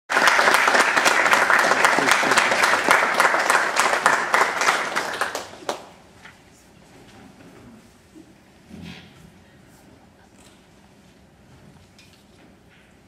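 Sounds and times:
audience applauding: 0:00.1 - 0:06.0.

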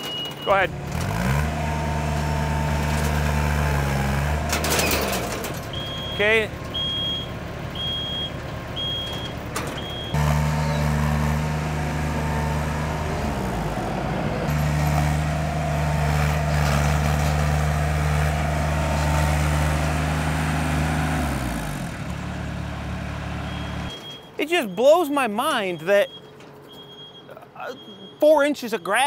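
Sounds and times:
backup alarm beeping: 0:00.0 - 0:00.7, 0:05.7 - 0:10.9, 0:23.4 - 0:29.0
diesel engine running hard: 0:00.0 - 0:24.0.

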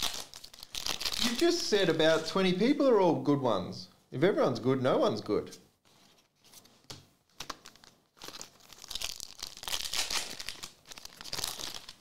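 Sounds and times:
foil wrapper tearing and crinkling: 0:00.0 - 0:02.3, 0:07.4 - 0:12.0.

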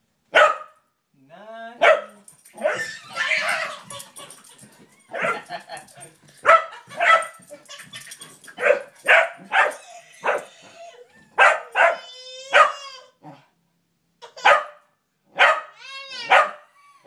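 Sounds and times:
dog barking: 0:00.3 - 0:00.8, 0:01.8 - 0:03.4, 0:06.4 - 0:07.4, 0:08.6 - 0:10.5, 0:11.4 - 0:12.9, 0:14.4 - 0:16.7.

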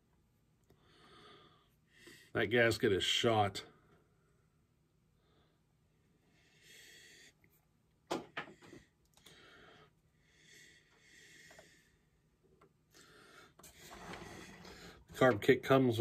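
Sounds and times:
faint breathing: 0:00.7 - 0:02.4, 0:03.7 - 0:07.6, 0:08.4 - 0:15.2.

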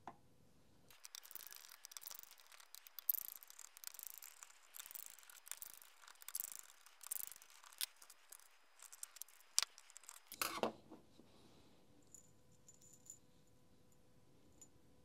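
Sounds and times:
screwdriver clicks and scrapes: 0:00.9 - 0:10.6.

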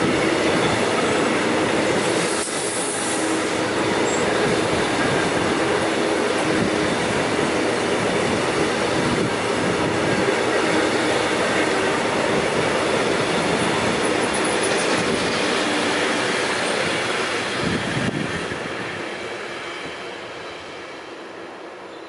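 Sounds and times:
freight train wheels rumbling on rails: 0:00.0 - 0:22.0.

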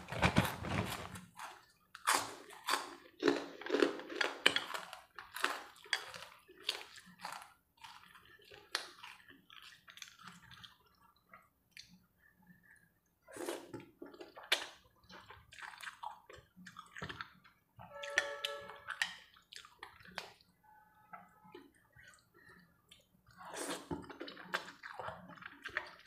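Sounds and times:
slurping noodles: 0:23.3 - 0:26.0.

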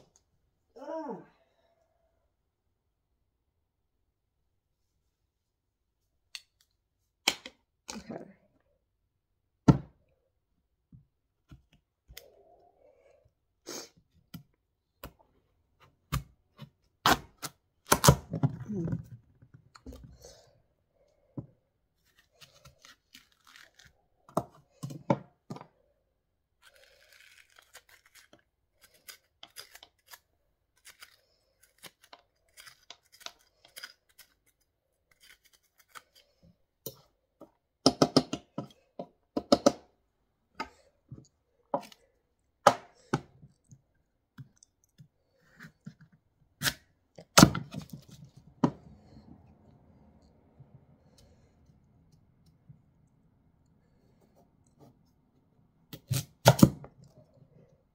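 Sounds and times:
spoon scraping squash seeds: 0:26.6 - 0:37.1.

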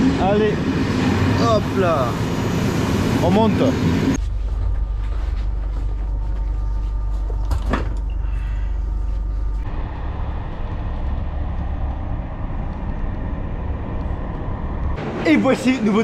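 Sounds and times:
vehicle interior rumble: 0:04.1 - 0:15.2.

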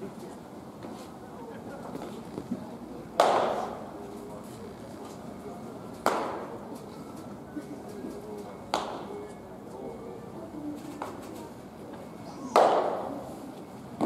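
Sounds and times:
baseball smacking into glove: 0:12.6 - 0:13.0.

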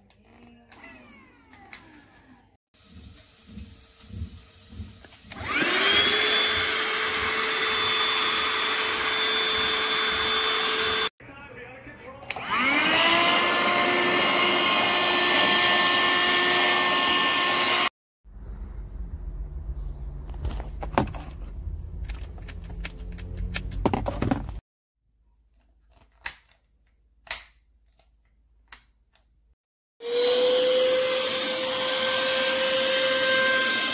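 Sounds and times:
handheld vacuum motor whining: 0:00.7 - 0:02.6, 0:05.0 - 0:11.1, 0:12.3 - 0:17.9, 0:30.0 - 0:33.9
low hum: 0:18.3 - 0:23.7.

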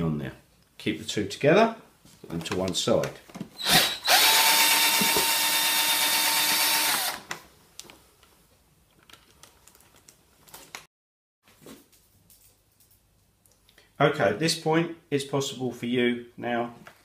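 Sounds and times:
cordless drill whining: 0:03.6 - 0:07.3.

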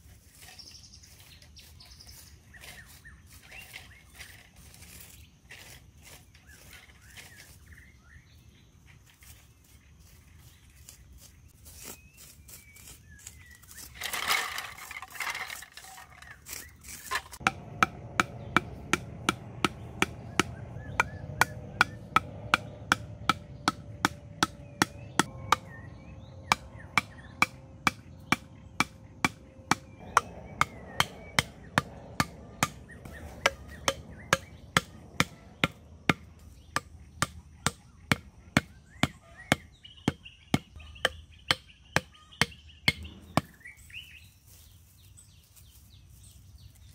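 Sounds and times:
mallet knocking on bamboo stakes: 0:17.0 - 0:25.7, 0:26.5 - 0:43.6.

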